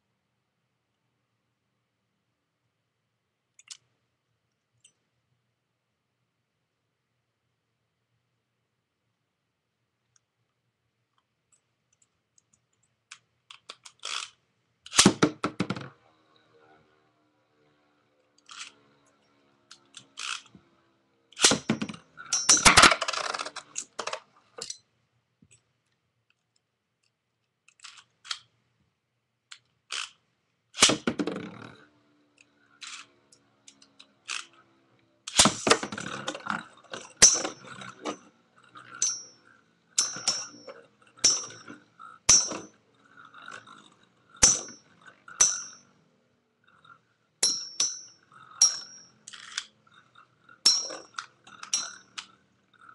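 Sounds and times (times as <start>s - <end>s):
plastic toys clicking and clattering: 12.0s - 15.9s, 18.4s - 18.8s, 19.7s - 20.6s, 21.4s - 24.8s, 27.6s - 28.6s, 29.5s - 30.2s, 32.4s - 34.6s, 48.4s - 52.9s
spinning tops clashing metallically: 21.4s - 24.0s, 35.3s - 36.2s, 37.0s - 38.2s, 38.8s - 42.8s, 44.4s - 45.9s, 47.4s - 49.5s, 50.6s - 52.2s.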